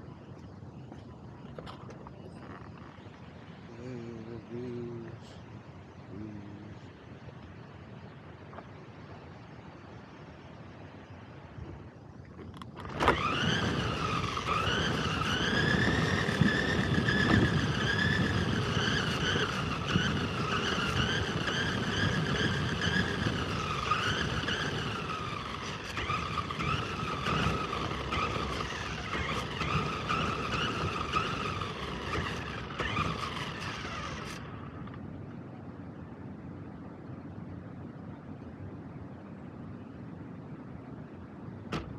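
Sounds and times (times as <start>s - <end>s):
tyres rumbling on pavement: 12.4s - 35.0s
toy car motor whining: 12.8s - 34.9s.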